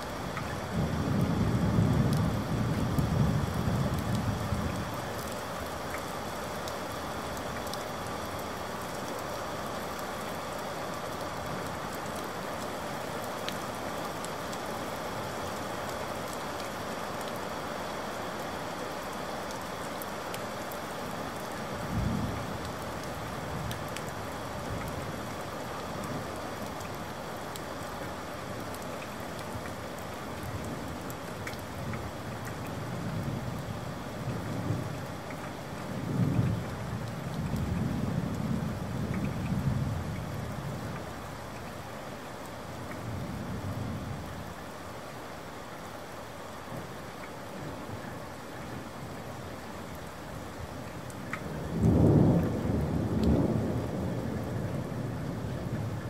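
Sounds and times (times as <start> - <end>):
steady rain: 0.0 - 56.0
thunder rumbling: 51.6 - 56.0.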